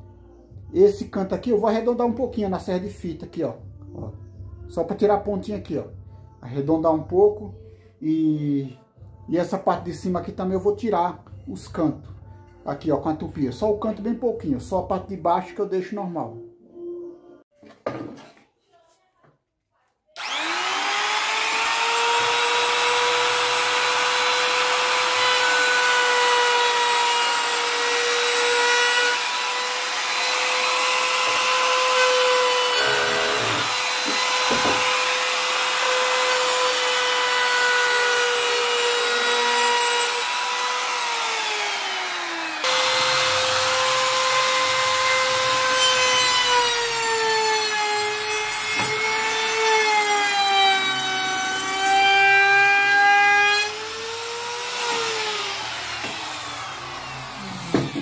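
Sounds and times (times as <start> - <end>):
trim router whining: 20.2 - 58.0.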